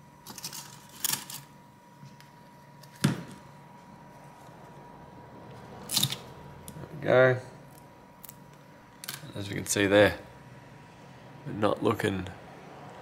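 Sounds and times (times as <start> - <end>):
soft handling and scraping: 3.6 - 4.9.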